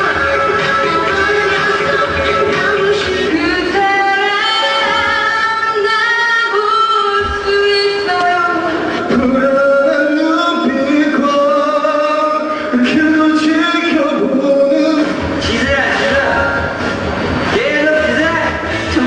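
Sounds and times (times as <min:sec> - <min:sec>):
musical backing: 0:00.0 - 0:19.0
young man singing: 0:07.6 - 0:16.8, 0:17.5 - 0:19.0.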